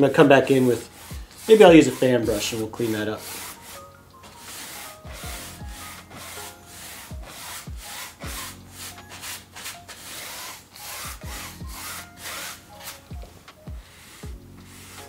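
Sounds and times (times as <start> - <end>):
paintbrush scrubbing canvas: 0.0 - 15.0.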